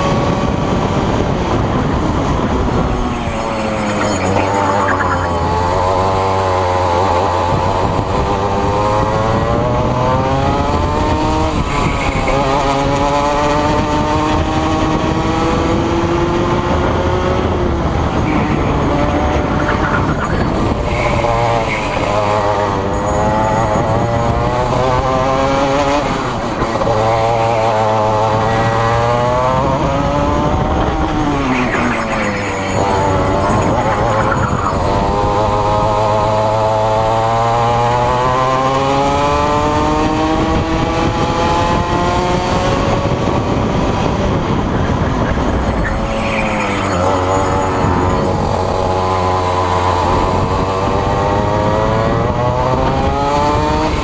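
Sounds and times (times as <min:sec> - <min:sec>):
two-stroke kart engine revving: 0:00.0 - 0:54.0.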